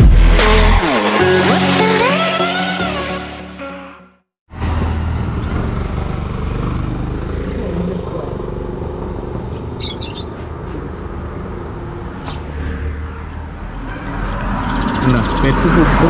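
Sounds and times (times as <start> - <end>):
caged birds chirping: 9.5 - 11.2, 14.2 - 16.0.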